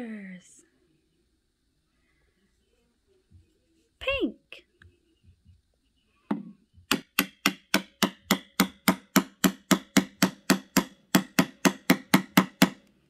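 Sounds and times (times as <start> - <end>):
wooden mallet knocking peg: 6.3 - 12.8.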